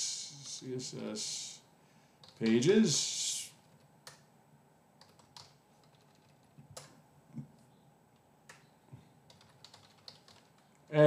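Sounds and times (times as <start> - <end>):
keyboard keystrokes: 9.3 - 10.7.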